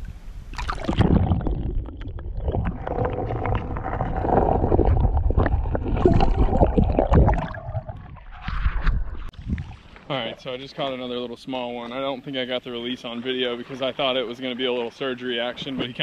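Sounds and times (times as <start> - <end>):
muffled underwater water sloshing: 0.0 - 16.0
bubbles: 0.5 - 9.9.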